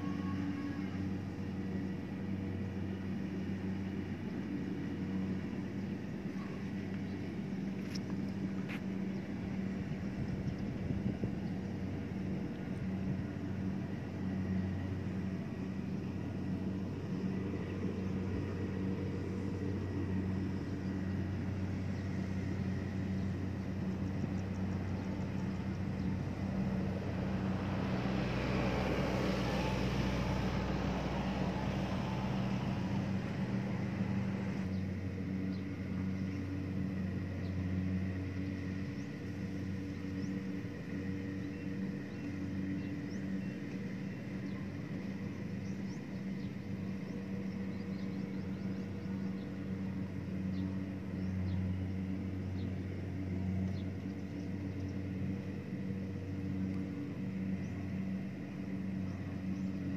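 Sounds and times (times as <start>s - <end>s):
harvester engine humming: 0.0s - 59.9s
wind buffeting microphone: 1.1s - 40.9s.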